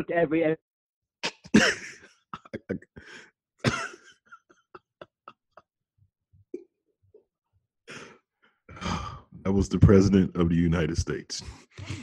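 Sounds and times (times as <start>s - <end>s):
person coughing: 1.2s - 4.2s.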